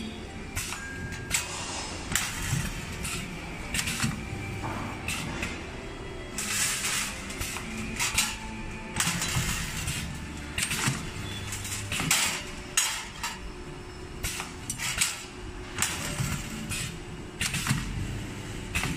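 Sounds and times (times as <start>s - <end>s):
low machine hum: 0.0s - 18.9s.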